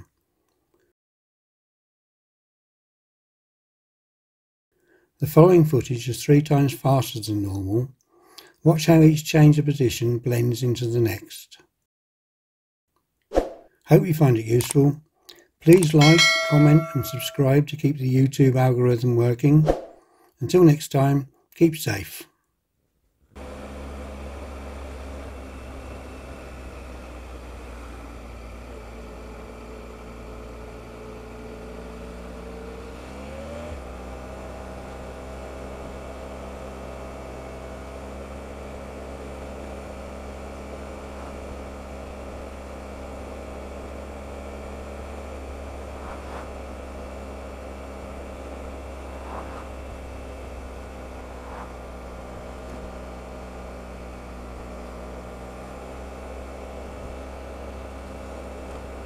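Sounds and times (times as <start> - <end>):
motorcycle engine running: 34.4 - 59.0
road and wind noise: 48.6 - 53.2.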